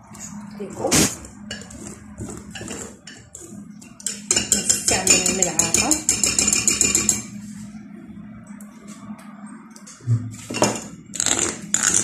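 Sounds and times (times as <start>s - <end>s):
soft stirring of batter: 0.0s - 9.9s
whisk clinking against glass bowl: 1.5s - 7.4s.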